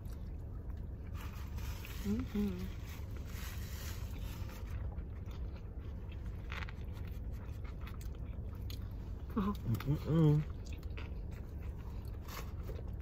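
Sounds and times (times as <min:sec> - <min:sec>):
people chewing sandwiches: 0:00.0 - 0:13.0
rustling: 0:01.0 - 0:05.0.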